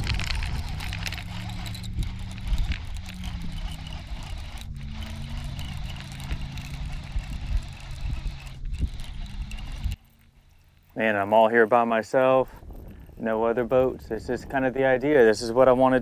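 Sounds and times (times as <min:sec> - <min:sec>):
electric trolling motor humming: 0:00.0 - 0:12.0
wind rumbling on microphone: 0:00.0 - 0:16.0.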